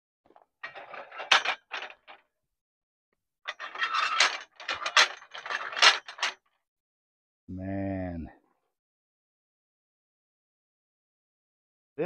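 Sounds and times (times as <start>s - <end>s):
steel paddles clanking: 0.6s - 2.2s, 3.5s - 6.4s.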